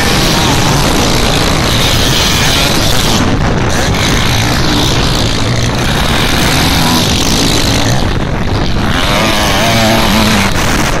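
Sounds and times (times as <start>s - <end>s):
motocross bike engines revving: 0.0s - 11.0s.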